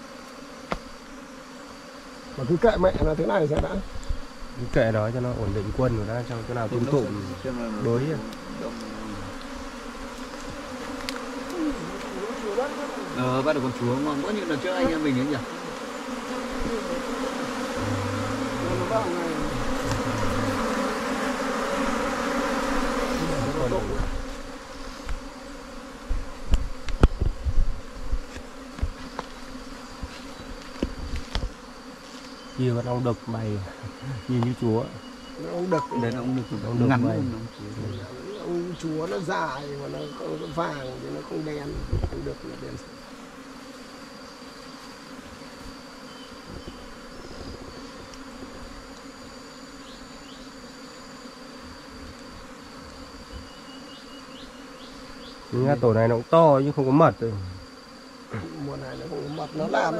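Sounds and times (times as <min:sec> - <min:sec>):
bees buzzing: 0:00.0 - 0:59.9
thin high tone: 0:17.8 - 0:19.4, 0:35.7 - 0:36.7.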